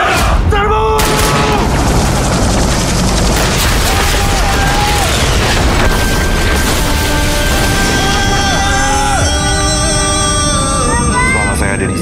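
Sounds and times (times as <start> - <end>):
dramatic orchestral score: 0.0 - 12.0
gunfire: 1.0 - 8.3
explosions: 1.0 - 10.2.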